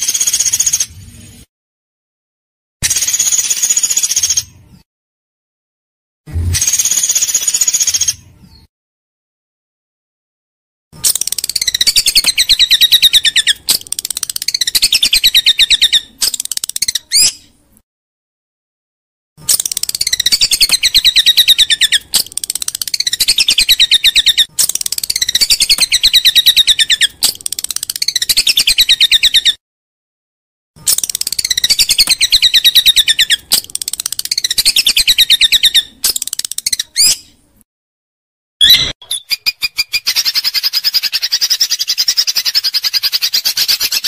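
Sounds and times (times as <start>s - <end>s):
songbird rattling trills: 11.0s - 17.2s, 19.4s - 29.1s, 30.8s - 36.9s.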